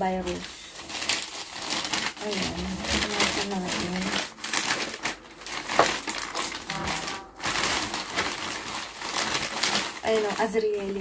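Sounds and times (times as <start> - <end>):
plastic bag rustling and crinkling: 0.0 - 11.0
sharp plastic crackle: 0.0 - 11.0.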